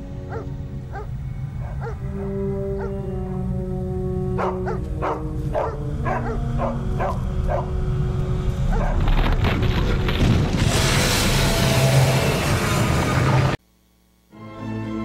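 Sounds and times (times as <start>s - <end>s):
held music notes: 0.0s - 8.7s
dogs barking: 0.2s - 3.0s, 4.4s - 7.8s, 8.7s - 9.1s
loud rushing noise: 10.2s - 13.6s.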